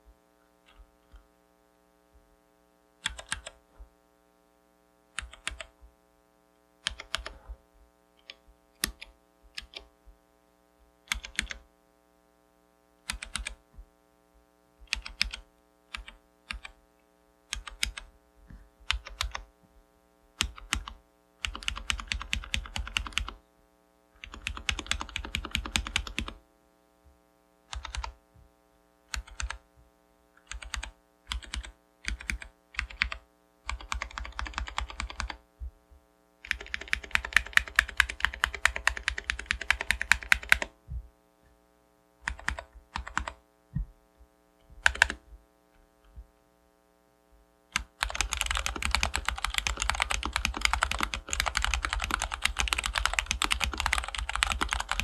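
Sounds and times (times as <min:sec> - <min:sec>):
mechanical keyboard typing: 0:03.0 - 0:03.6, 0:05.2 - 0:05.7, 0:06.8 - 0:07.4, 0:08.2 - 0:09.9, 0:11.1 - 0:11.6, 0:13.1 - 0:13.6, 0:14.9 - 0:16.8, 0:17.5 - 0:18.1, 0:18.9 - 0:19.4, 0:20.4 - 0:23.4, 0:24.2 - 0:26.4, 0:27.7 - 0:28.2, 0:29.1 - 0:29.6, 0:30.4 - 0:35.4, 0:36.4 - 0:40.7, 0:42.2 - 0:43.4, 0:44.8 - 0:45.2, 0:47.8 - 0:55.0.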